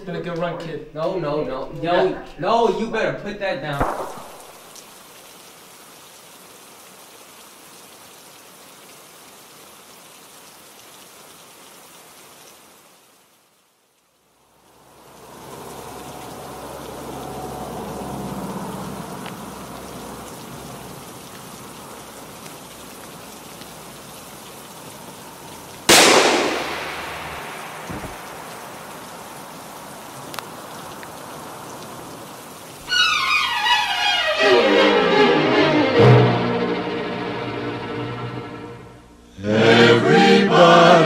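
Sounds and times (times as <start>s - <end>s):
background hiss: 0.0s - 41.0s
loud gunshot with echo: 3.8s - 4.7s, 25.9s - 28.7s
orchestral string music: 32.9s - 41.0s.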